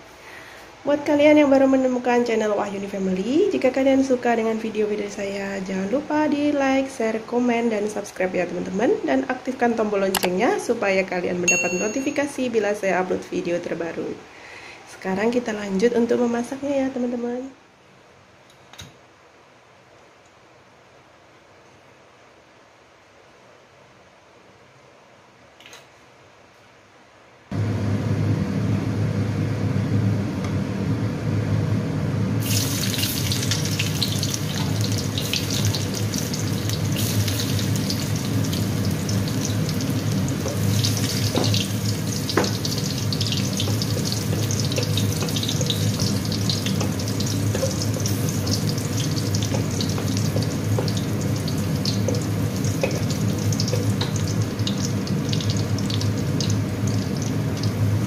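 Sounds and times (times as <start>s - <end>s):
steady low hum: 27.5s - 58.0s
garlic sizzling in hot oil: 32.4s - 58.0s.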